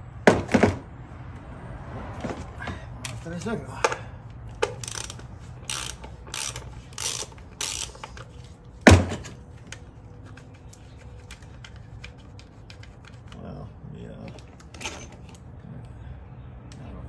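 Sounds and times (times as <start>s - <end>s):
socket ratchet clicking: 4.6s - 8.2s.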